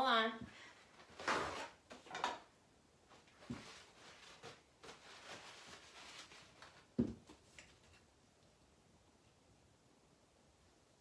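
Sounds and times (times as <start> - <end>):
paper towel rustling: 3.1 - 8.0.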